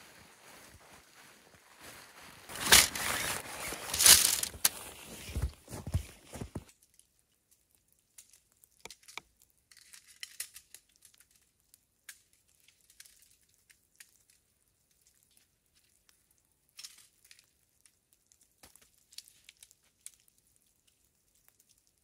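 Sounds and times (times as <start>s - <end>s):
crinkly rustling: 0.0s - 6.9s
tent poles clicking: 2.5s - 6.7s.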